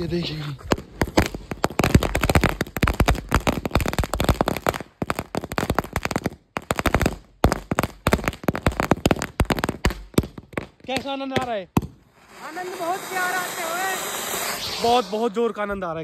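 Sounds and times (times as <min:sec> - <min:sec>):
firecrackers cracking: 0:00.0 - 0:15.7.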